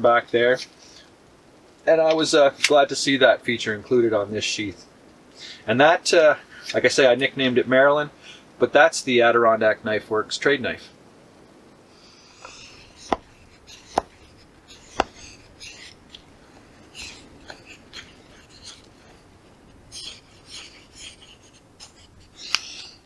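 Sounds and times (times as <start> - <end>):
knife shaving wood: 12.4 - 23.0.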